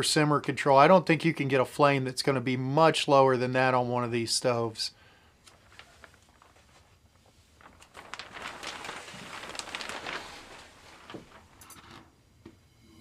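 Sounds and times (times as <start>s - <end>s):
soft rustling: 5.4s - 12.0s.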